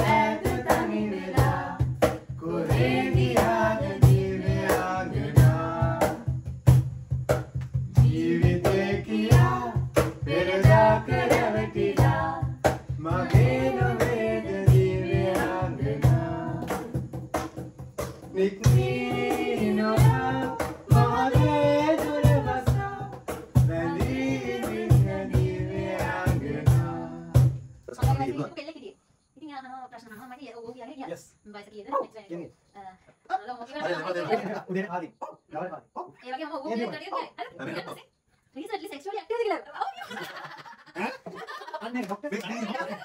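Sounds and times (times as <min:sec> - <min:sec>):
people singing together: 0:00.0 - 0:06.4, 0:07.9 - 0:17.2, 0:18.2 - 0:28.5, 0:33.8 - 0:34.7, 0:42.4 - 0:43.0
hand percussion beat: 0:00.0 - 0:28.4
man's voice leading song: 0:23.7 - 0:24.8.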